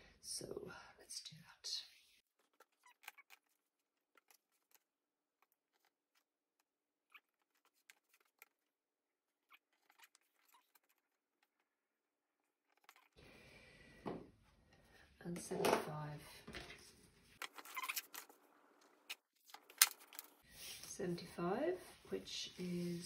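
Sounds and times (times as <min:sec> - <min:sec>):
strap being handled: 0:02.3 - 0:11.8, 0:19.1 - 0:20.9.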